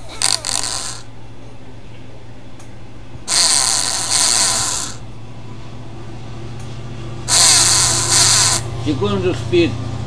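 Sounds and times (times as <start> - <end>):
relay clicking: 0.0 - 1.1, 3.3 - 5.0, 7.3 - 8.7
small motor whirring: 0.0 - 1.1, 3.3 - 5.0, 7.3 - 8.7
steady low hum: 0.0 - 10.0.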